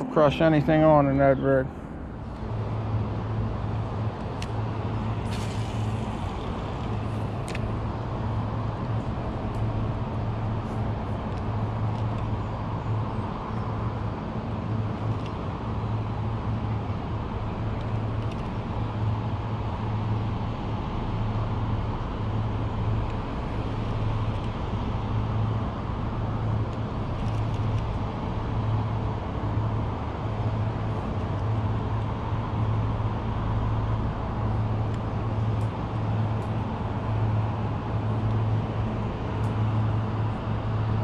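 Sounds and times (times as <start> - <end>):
low hum: 0.0 - 41.0
road traffic rumble: 0.0 - 41.0.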